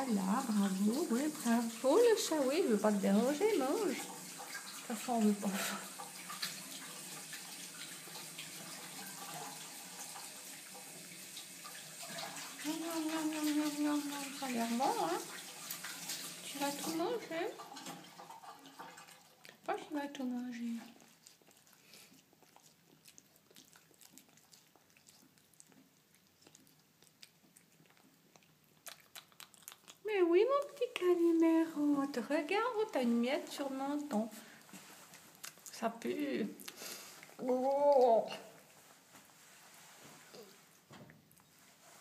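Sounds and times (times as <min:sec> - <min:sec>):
cat chewing wet food: 0:18.8 - 0:31.1, 0:34.3 - 0:35.8, 0:36.4 - 0:38.8.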